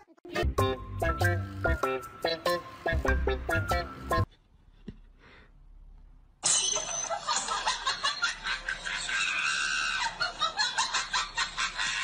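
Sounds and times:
person laughing hard: 7.3s - 12.0s.

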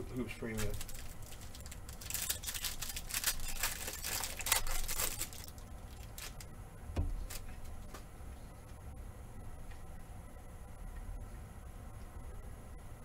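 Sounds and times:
plastic wrapper crinkling and tearing: 0.4s - 6.5s, 7.2s - 7.7s.

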